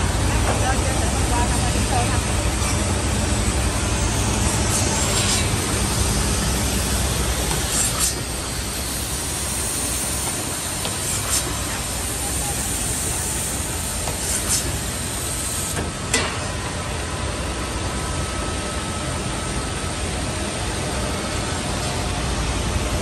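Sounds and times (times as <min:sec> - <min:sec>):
compressed air hisses: 0:07.6 - 0:15.8.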